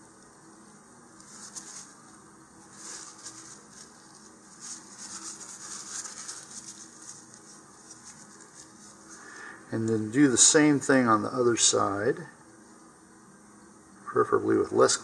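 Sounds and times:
tissue rubbing on tube: 1.1 - 9.2.

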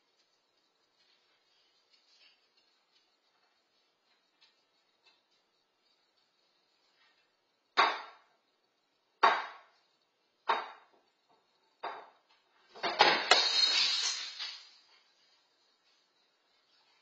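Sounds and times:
bowl shattering on floor: 12.8 - 14.8.

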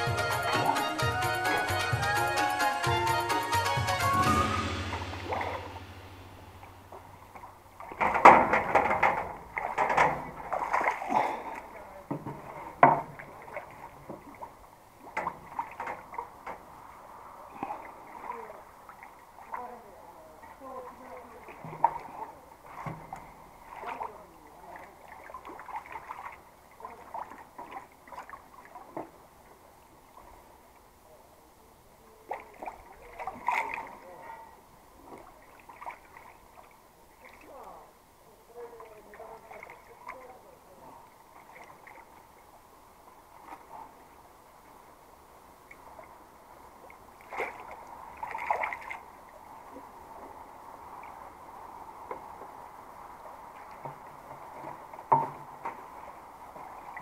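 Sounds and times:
fish splashing in water: 4.8 - 29.4, 32.2 - 37.9, 38.5 - 42.5, 46.8 - 50.0.

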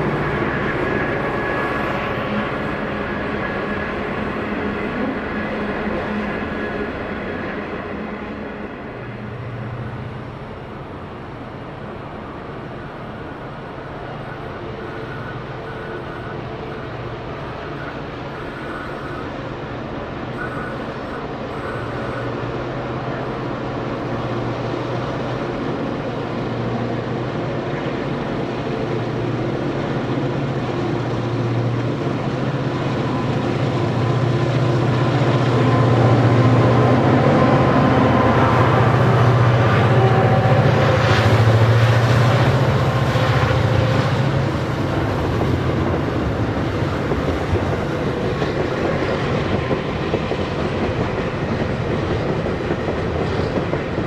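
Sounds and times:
diesel locomotive engine drone: 0.0 - 54.0.

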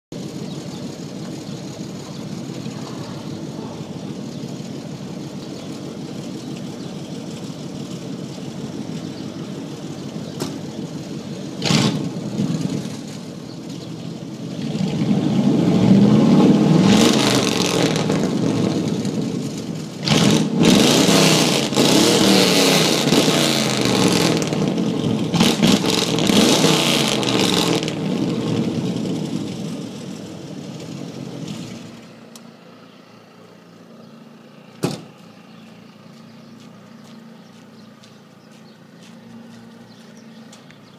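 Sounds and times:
loud truck engine revving: 5.7 - 13.3, 14.3 - 32.2.

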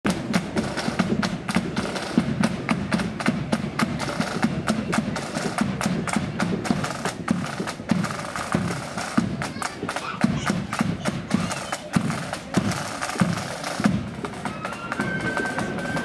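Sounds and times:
bass drum thuds: 0.1 - 9.5
side-drum strokes: 0.1 - 16.0.

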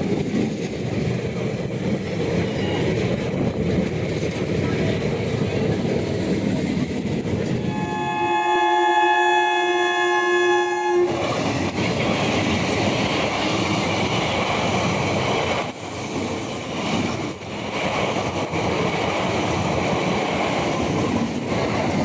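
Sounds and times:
train wheels clattering on track: 0.0 - 9.4, 10.2 - 22.0
train horn: 7.5 - 11.3.

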